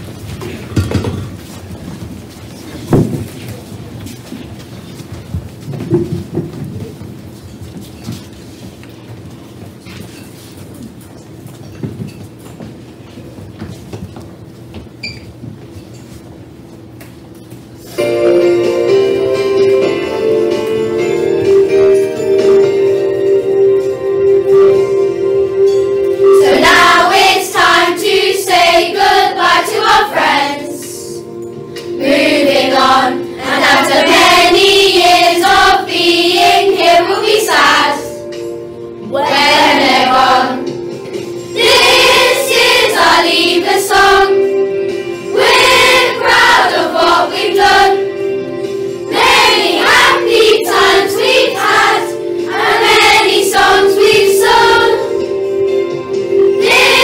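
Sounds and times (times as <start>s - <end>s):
instrumental accompaniment: 17.9s - 57.0s
children singing a worship song: 26.3s - 31.2s, 32.0s - 38.2s, 39.1s - 40.7s, 41.6s - 44.4s, 45.3s - 48.1s, 49.1s - 55.2s, 56.5s - 57.0s.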